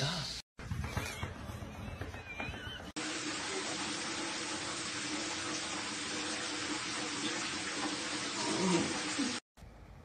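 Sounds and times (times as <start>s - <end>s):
water running from a tap: 3.0s - 9.4s.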